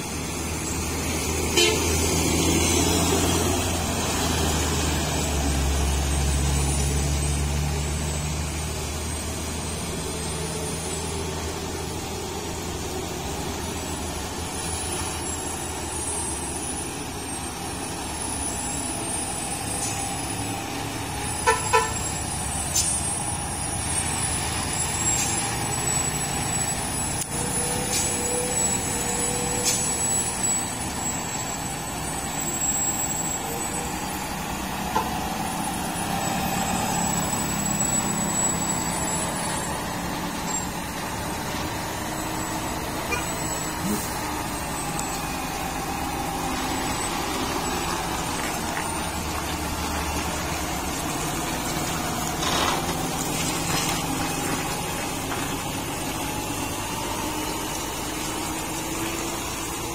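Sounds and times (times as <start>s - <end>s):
diesel truck engine under load: 0.0s - 59.9s
truck horn toots: 1.5s - 2.7s, 21.4s - 22.2s, 43.0s - 44.2s.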